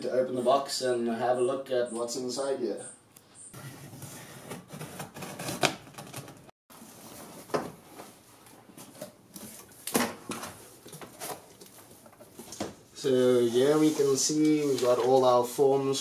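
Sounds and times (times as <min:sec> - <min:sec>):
cardboard flaps scraping and rustling: 0:03.6 - 0:12.6, 0:13.2 - 0:15.6.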